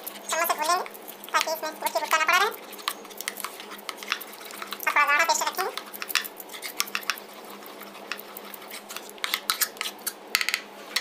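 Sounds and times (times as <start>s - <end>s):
high-pitched voice-like sound: 0.3s - 2.6s, 4.8s - 5.8s
spoon scraping ceramic bowl: 1.4s - 10.2s.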